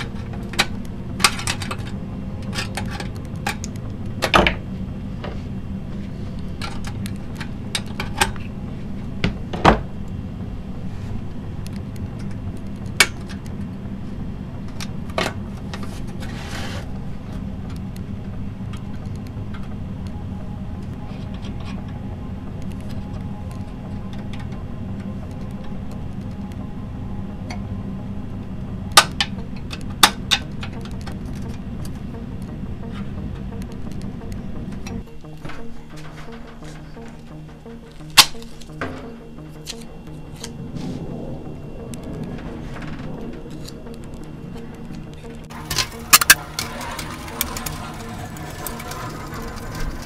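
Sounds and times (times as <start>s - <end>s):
steady low hum: 0.0s - 50.0s
thin metal clicking and crinkling: 41.9s - 50.0s.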